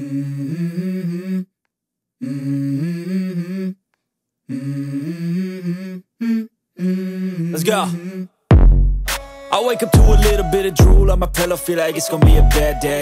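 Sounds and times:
person humming a melody: 0.0s - 1.5s, 4.5s - 8.3s, 9.8s - 13.0s.

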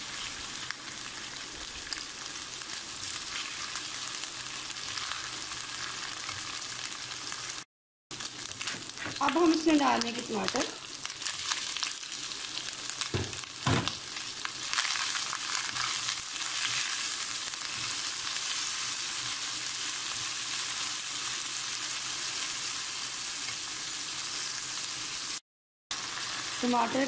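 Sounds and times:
food sizzling in hot oil: 0.0s - 27.0s.

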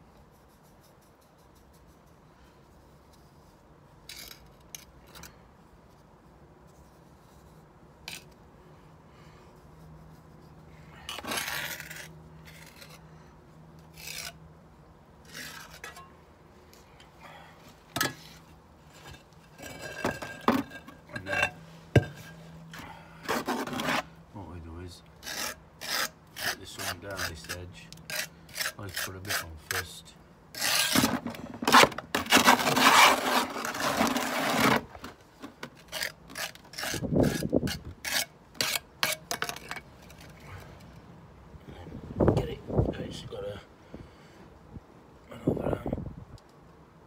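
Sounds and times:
trowel scraping mortar: 4.0s - 5.3s, 9.8s - 13.0s, 13.9s - 14.4s, 15.2s - 16.0s, 23.2s - 24.1s, 25.2s - 40.4s.

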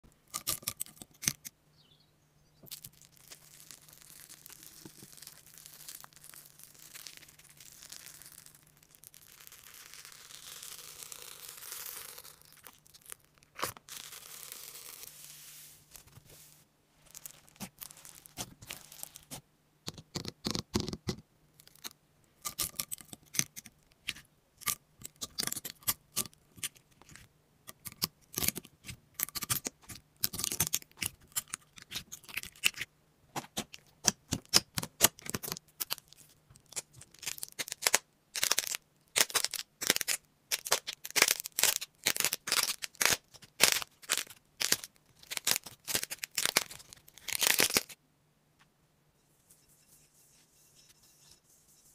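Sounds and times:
soft rustling hiss: 2.8s - 19.5s, 48.5s - 51.9s.

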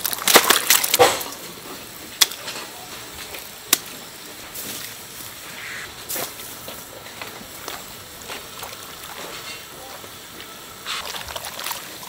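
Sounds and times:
kitchen utensils clattering: 9.0s - 9.8s.

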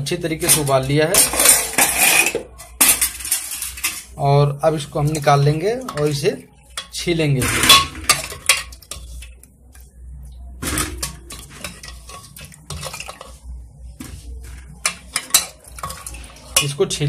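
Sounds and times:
ladle clinking against pot: 5.8s - 9.3s, 14.7s - 16.8s.

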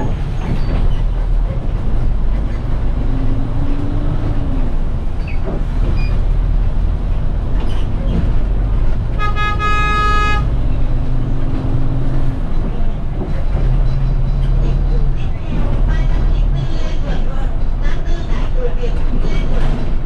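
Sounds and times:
bus engine rumbling: 0.0s - 20.0s
vehicle horn toot: 9.2s - 10.5s.

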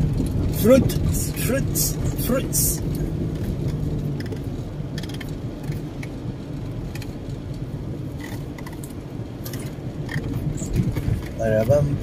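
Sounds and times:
car road and engine rumble: 0.0s - 12.0s
light clicks and rustles: 2.8s - 11.8s.

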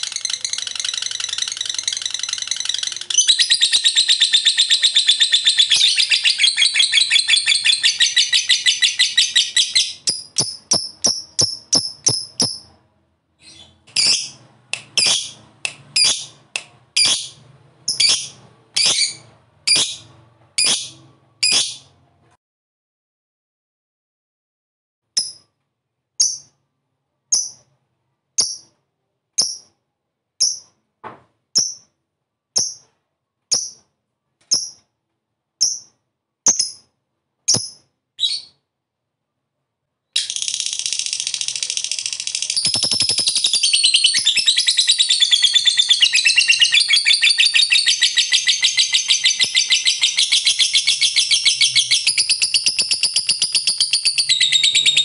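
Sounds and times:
bird rapid chattering trill: 0.0s - 12.7s, 14.0s - 15.4s, 40.2s - 55.0s.

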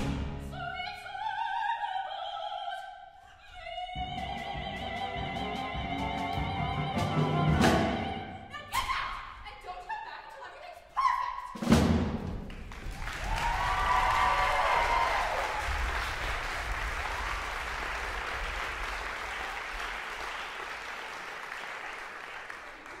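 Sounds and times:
audience applauding and cheering: 12.4s - 23.0s.

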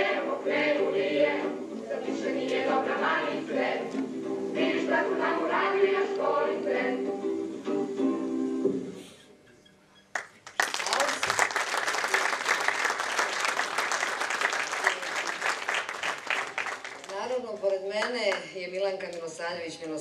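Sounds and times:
music: 0.0s - 10.0s
audience applause: 10.2s - 17.5s.

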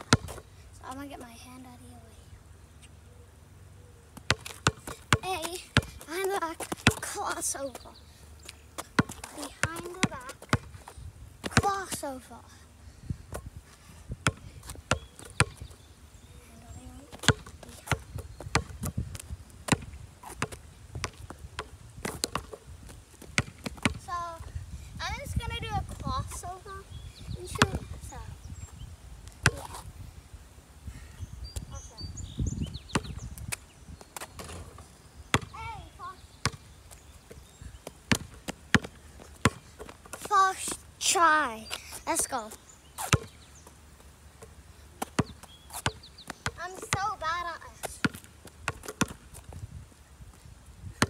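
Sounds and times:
basketball bouncing on asphalt: 0.0s - 1.2s, 4.2s - 7.8s, 8.8s - 12.0s, 14.1s - 16.3s, 17.0s - 24.6s, 25.2s - 28.3s, 29.2s - 29.8s, 32.5s - 40.9s, 41.6s - 49.7s.

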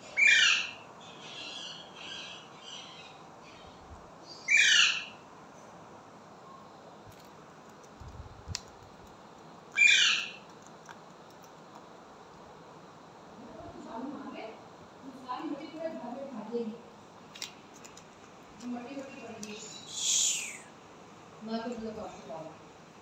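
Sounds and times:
parakeet calls: 0.0s - 5.2s, 9.7s - 10.5s
parakeet chattering: 0.1s - 3.6s, 4.4s - 5.2s, 9.7s - 10.6s.

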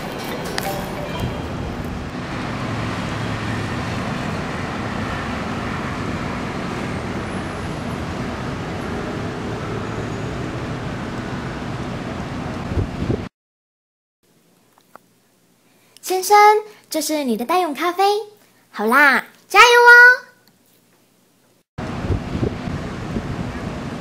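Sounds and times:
city traffic noise: 0.0s - 13.3s, 21.8s - 24.0s.

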